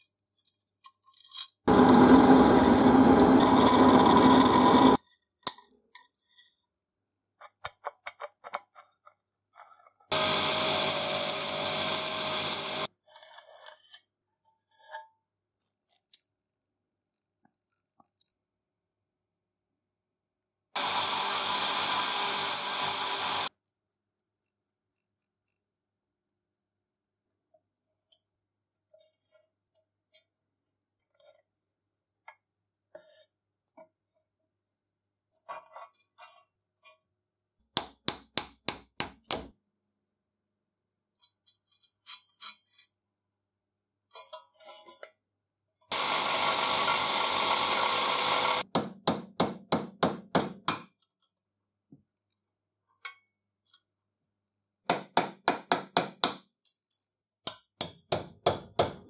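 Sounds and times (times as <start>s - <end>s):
hammer tapping on pin punch: 48.7s - 50.9s, 54.9s - 56.5s, 57.5s - 59.0s.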